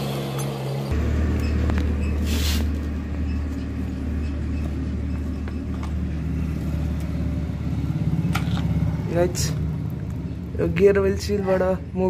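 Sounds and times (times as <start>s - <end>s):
motorcycle engine idling: 0.9s - 12.0s
brief hiss: 2.2s - 2.7s.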